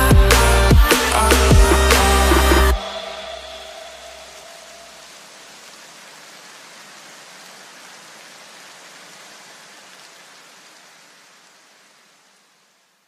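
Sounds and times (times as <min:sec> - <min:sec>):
electronic background music: 0:00.0 - 0:05.0
steady hiss: 0:00.0 - 0:13.0.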